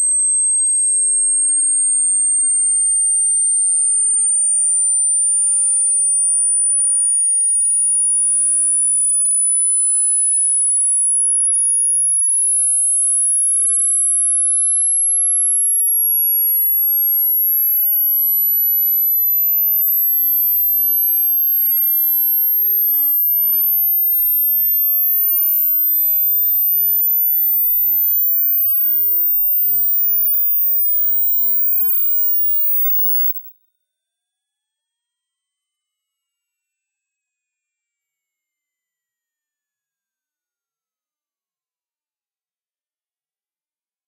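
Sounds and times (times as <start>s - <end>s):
rising sine-wave test tone: 0.0s - 33.5s.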